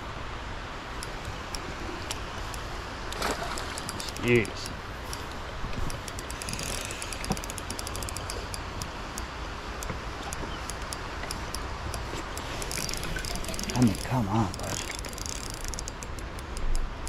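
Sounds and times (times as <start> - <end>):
fishing reel ratchet clicking: 5.9 - 8.9, 12.3 - 16.8.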